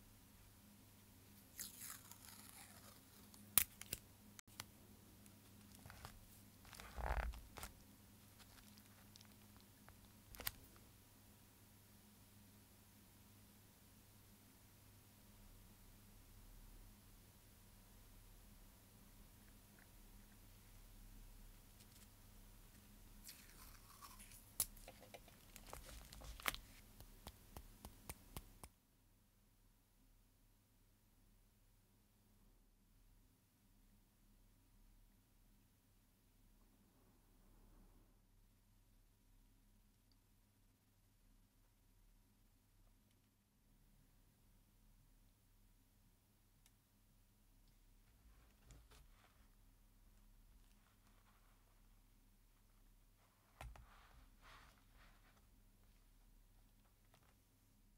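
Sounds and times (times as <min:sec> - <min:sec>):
paper rustling: 0:25.1 - 0:26.9.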